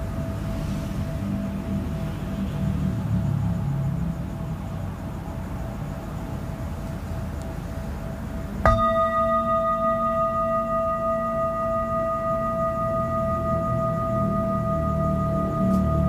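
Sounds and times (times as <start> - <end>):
metal singing bowl ringing: 8.6 - 16.0.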